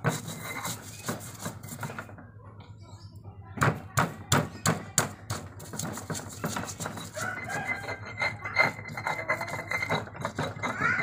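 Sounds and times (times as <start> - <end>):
pestle scraping in mortar: 0.0 - 2.2, 4.0 - 11.0
pestle knocking on mortar: 3.6 - 11.0.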